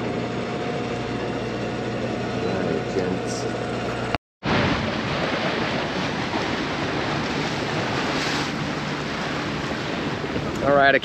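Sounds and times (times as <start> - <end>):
wind buffeting microphone: 3.7 - 11.0
wind and water rushing: 4.4 - 11.0.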